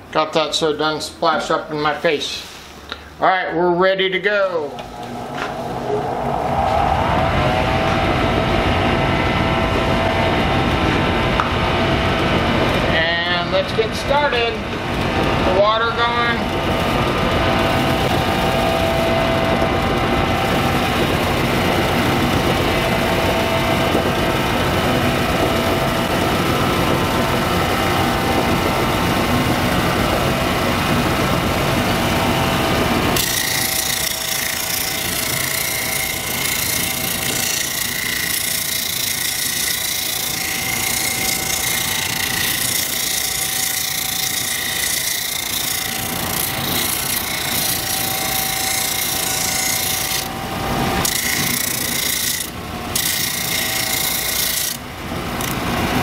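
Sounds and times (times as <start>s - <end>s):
electric motor spinning sanding wheel: 4.0s - 56.0s
stone grinding on wheel: 33.2s - 50.3s, 51.0s - 54.8s.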